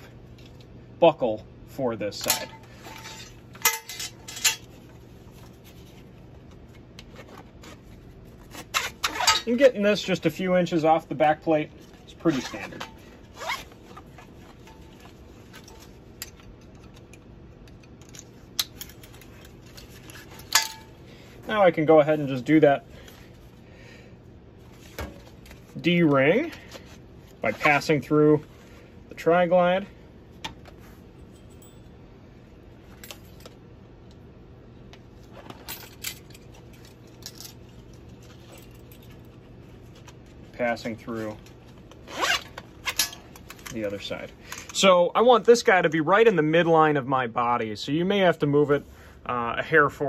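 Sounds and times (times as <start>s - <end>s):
low steady hum: 0.0s - 50.0s
metallic clink: 31.2s - 32.0s.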